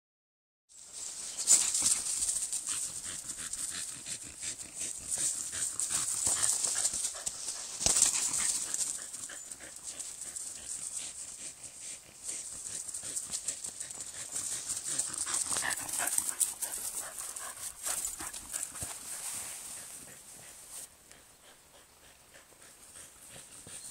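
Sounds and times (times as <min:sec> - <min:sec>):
dog breathing and mouth noises: 0:01.4 - 0:23.9.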